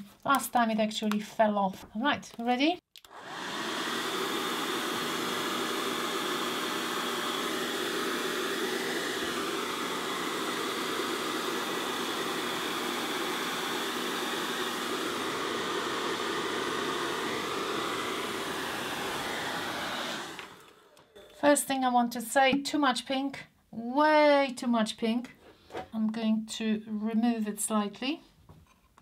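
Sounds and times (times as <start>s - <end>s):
hairdryer running: 3.0s - 21.7s.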